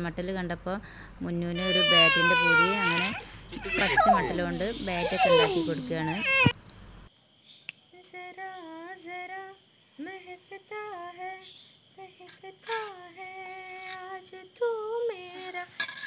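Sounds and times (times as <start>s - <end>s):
girl breathing: 0.8s - 1.2s, 3.1s - 5.1s
girl singing: 1.6s - 6.1s, 8.0s - 15.8s.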